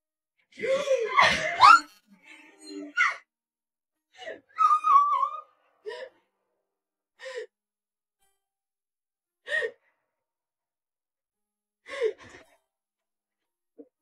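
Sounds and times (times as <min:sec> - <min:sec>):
person sobbing: 0:00.6 - 0:01.8.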